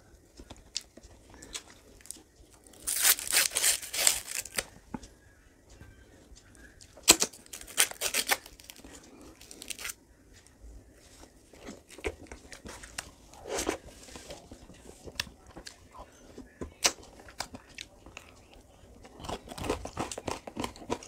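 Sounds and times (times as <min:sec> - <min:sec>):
wrapper ripping and crinkling: 0:02.7 - 0:04.6, 0:07.0 - 0:08.8, 0:09.4 - 0:10.0.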